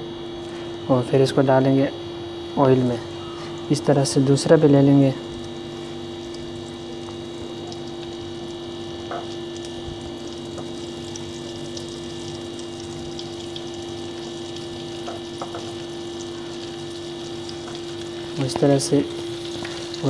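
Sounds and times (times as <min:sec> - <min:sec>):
low hum: 0:02.0 - 0:20.0
chicken sizzling in oil: 0:04.7 - 0:20.0.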